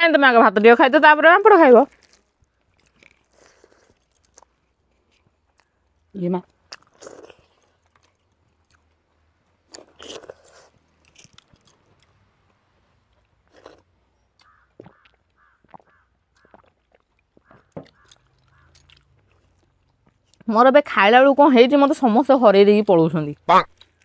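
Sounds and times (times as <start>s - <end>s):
people chewing and lip smacking: 1.9s - 20.5s, 23.7s - 24.0s.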